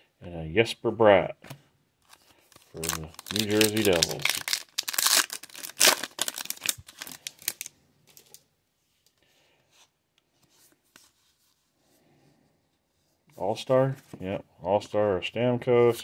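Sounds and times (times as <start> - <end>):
cards rustling: 2.0 - 8.4
foil wrapper crinkling and tearing: 2.1 - 8.4.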